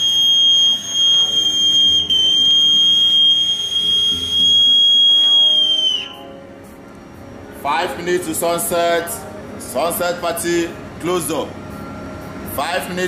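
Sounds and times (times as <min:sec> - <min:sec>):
high whistle note: 0:00.0 - 0:06.4.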